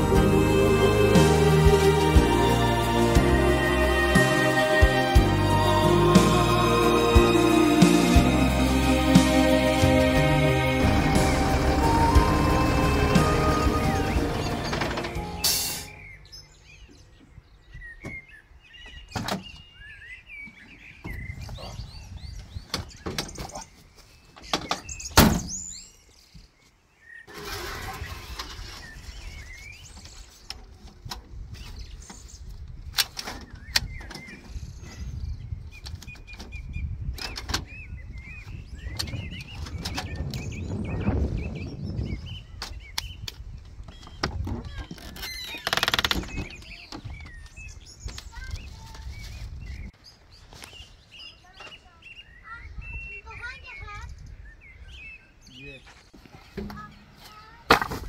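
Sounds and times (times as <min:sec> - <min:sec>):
small birds chirping: 0:12.1 - 0:27.3, 0:28.0 - 0:57.7
metal ladder clanking: 0:14.4 - 0:16.0.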